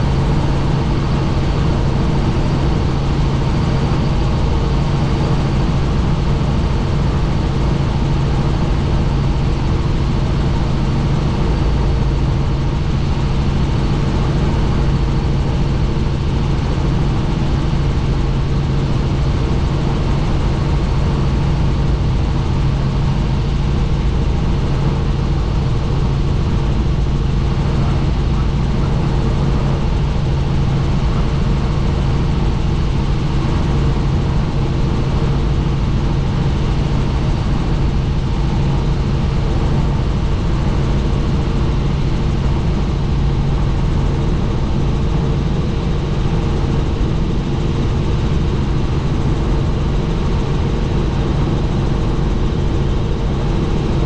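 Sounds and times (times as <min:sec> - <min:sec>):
broad rushing noise: 0:00.0 - 0:03.5
helicopter engine and rotor hum: 0:00.0 - 0:54.0.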